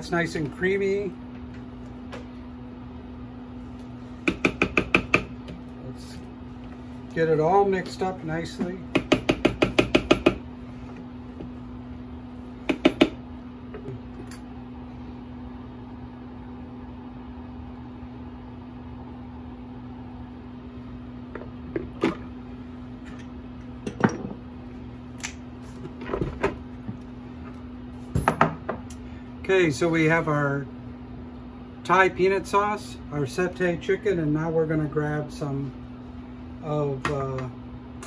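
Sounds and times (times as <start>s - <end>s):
steady low hum: 0.0s - 38.0s
sharp knocks and clicks: 4.3s - 5.6s.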